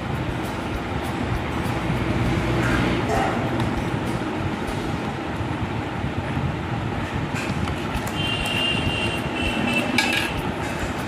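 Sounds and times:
low rumbling background noise: 0.0 - 11.0
scissors clattering on glass: 9.2 - 11.0.

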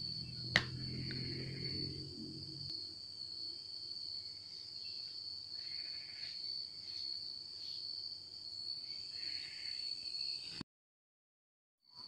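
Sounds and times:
high-pitched whine: 0.0 - 3.7.

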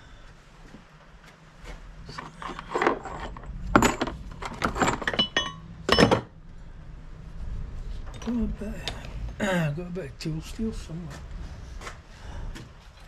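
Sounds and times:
metal pieces knocking and clinking: 2.2 - 6.3.

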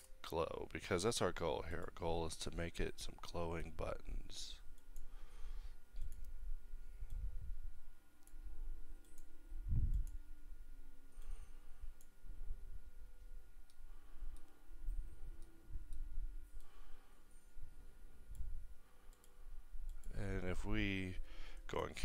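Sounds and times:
computer mouse clicks: 6.0 - 6.4, 9.0 - 9.3, 9.9 - 10.2, 13.7 - 14.6, 19.1 - 20.2.

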